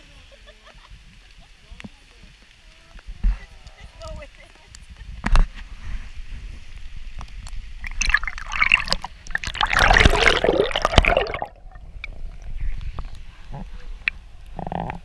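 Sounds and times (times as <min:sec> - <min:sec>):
small crackles: 0:01.1 - 0:15.0
river water splashing and gurgling: 0:06.0 - 0:15.0.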